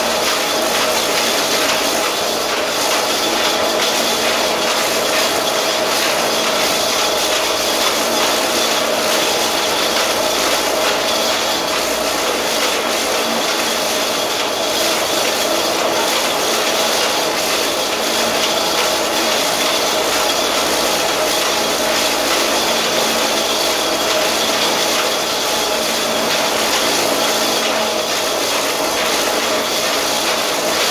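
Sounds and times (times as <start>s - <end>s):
machine running with humming tones: 0.0s - 30.9s.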